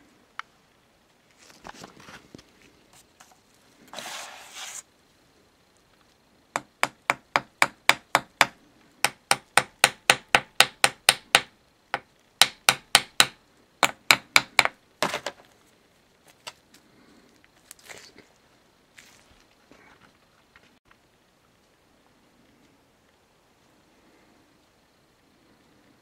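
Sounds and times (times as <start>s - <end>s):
brief scraping rub: 3.2s - 4.9s.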